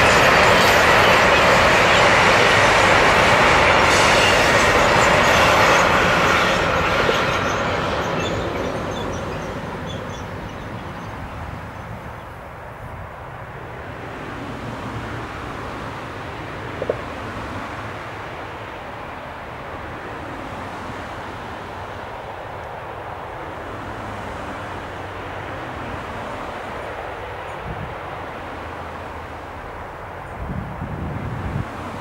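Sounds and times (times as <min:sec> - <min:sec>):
train wheels rumbling and clattering: 0:00.0 - 0:12.2.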